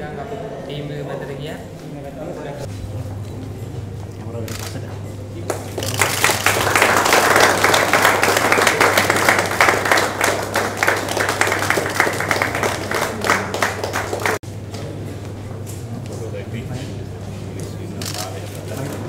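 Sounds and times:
people clapping in applause: 5.4s - 14.4s.

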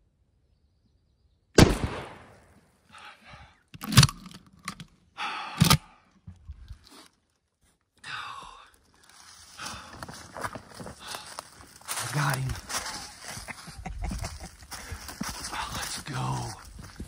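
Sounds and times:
shotgun blast: 1.6s - 2.5s.

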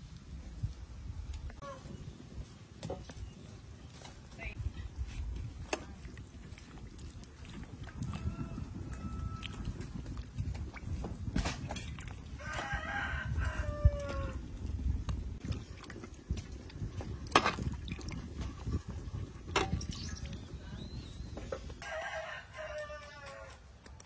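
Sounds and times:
rooster crowing: 8.0s - 9.6s, 12.4s - 14.4s, 21.8s - 23.6s.

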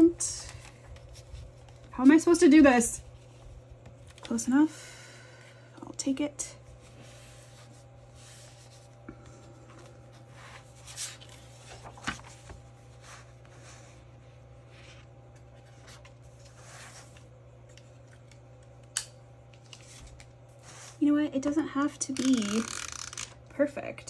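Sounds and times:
paper rustling and rubbing: 6.7s - 9.0s, 9.6s - 17.2s.

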